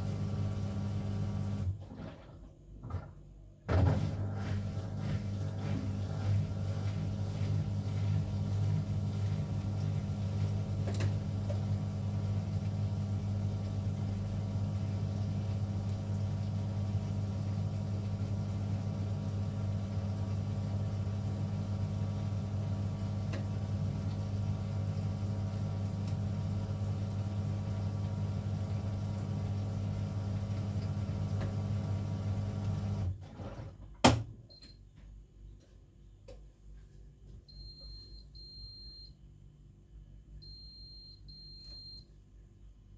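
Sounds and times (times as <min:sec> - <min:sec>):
drain pump humming: 0:00.0 - 0:01.8, 0:03.7 - 0:33.2.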